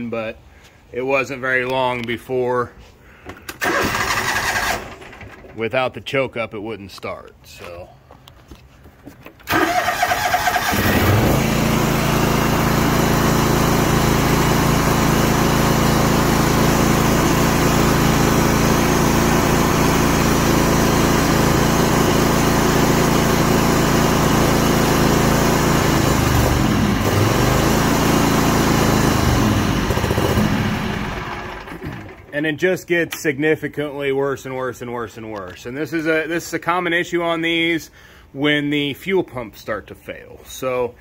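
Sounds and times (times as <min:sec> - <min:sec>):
engine cranking on starter: 0:03.4 - 0:05.6, 0:09.4 - 0:12.9, 0:25.8 - 0:32.3
mower engine running: 0:03.6 - 0:05.5, 0:09.4 - 0:32.3.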